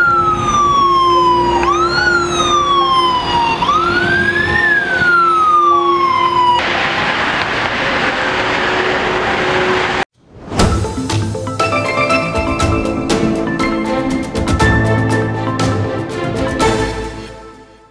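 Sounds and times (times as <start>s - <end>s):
emergency vehicle siren wailing: 0.0s - 10.1s
road traffic noise: 0.0s - 10.1s.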